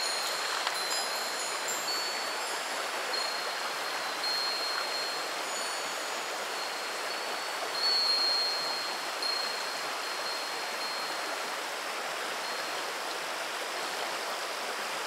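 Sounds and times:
wind chime high tone: 0:00.0 - 0:11.3
river babbling over pebbles: 0:00.0 - 0:15.0.

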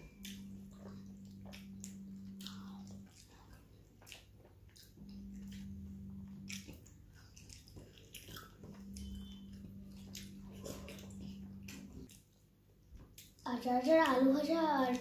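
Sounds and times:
chewing and mouth sounds: 0:00.0 - 0:15.0
low steady hum: 0:00.0 - 0:15.0.

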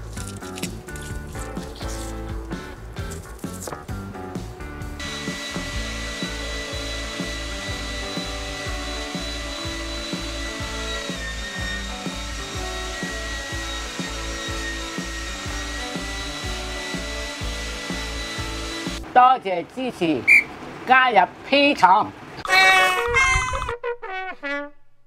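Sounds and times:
background music with a beat: 0:00.0 - 0:19.0
meat grinder motor whining: 0:05.0 - 0:19.1.

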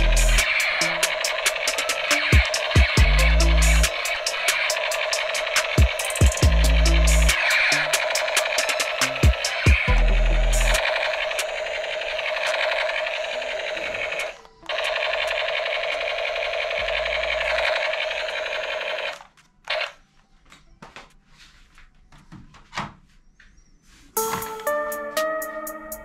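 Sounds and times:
toy gun buzzing rattle: 0:00.0 - 0:19.9.

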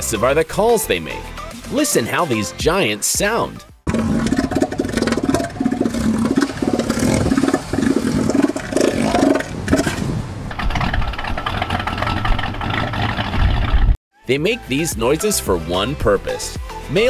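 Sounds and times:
elephant seal calling: 0:03.9 - 0:10.1.

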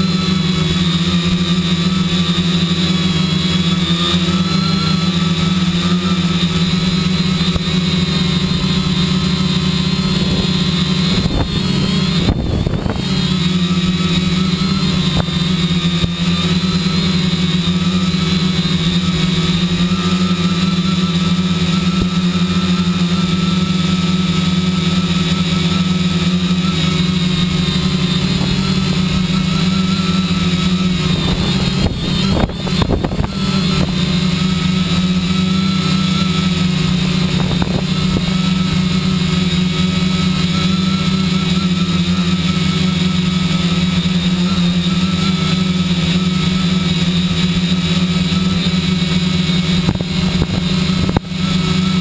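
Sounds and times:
drone propellers humming: 0:00.0 - 0:52.0
strong wind: 0:06.1 - 0:24.4, 0:26.0 - 0:41.1, 0:48.4 - 0:52.0.

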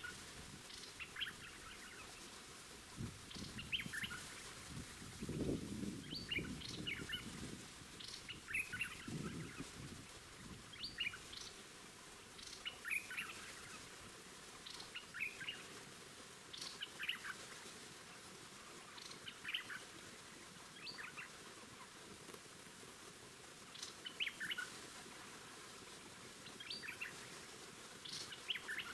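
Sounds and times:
bulbuls chirping: 0:03.3 - 0:07.4, 0:08.0 - 0:09.9.

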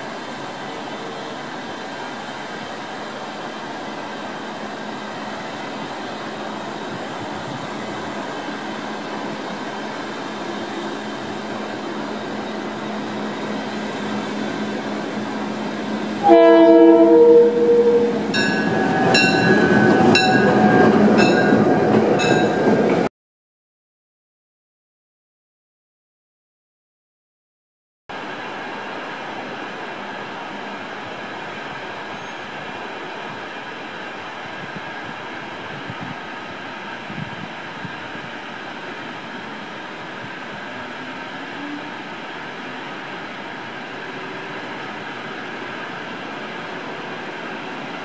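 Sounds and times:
diesel locomotive passing: 0:00.0 - 0:23.1, 0:28.1 - 0:48.0
train horn blast: 0:16.2 - 0:18.4
locomotive bell ringing: 0:16.3 - 0:22.8.

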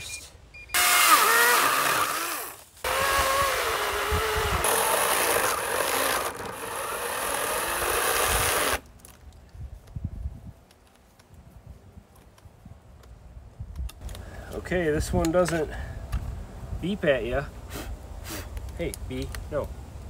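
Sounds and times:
electric chainsaw cutting log: 0:00.8 - 0:08.8.

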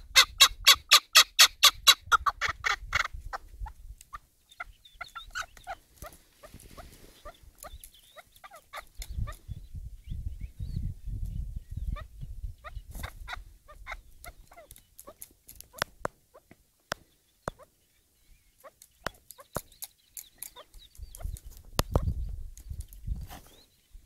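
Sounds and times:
partridges clucking: 0:18.6 - 0:22.8.

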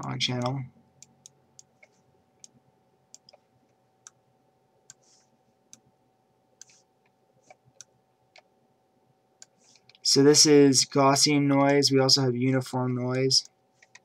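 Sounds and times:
faint steady background tone: 0:00.0 - 0:14.0
computer mouse clicks: 0:00.4 - 0:04.2, 0:06.6 - 0:06.8, 0:07.4 - 0:08.5, 0:13.8 - 0:14.0.

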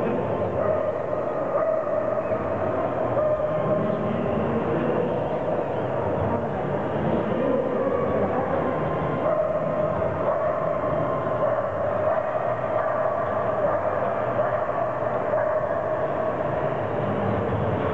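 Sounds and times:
exhibition hall din: 0:00.0 - 0:17.9
dogs barking: 0:00.1 - 0:04.1, 0:08.0 - 0:16.7.

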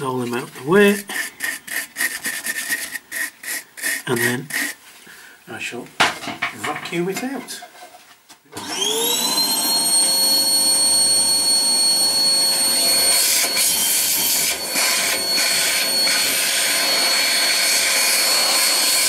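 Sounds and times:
vacuum cleaner running: 0:08.5 - 0:19.0.

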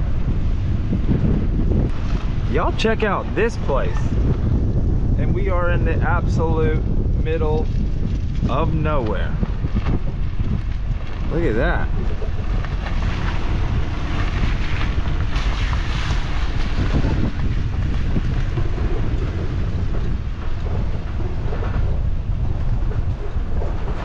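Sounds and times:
wind buffeting microphone: 0:00.0 - 0:24.0
vehicle driving slowly: 0:09.4 - 0:24.0.

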